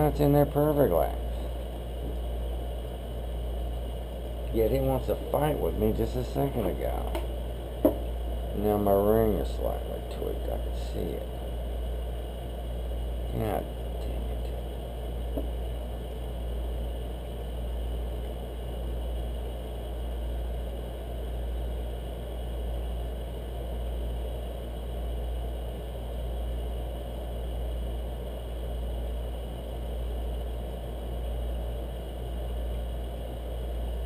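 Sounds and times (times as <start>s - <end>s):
low mechanical hum: 0.0s - 34.0s.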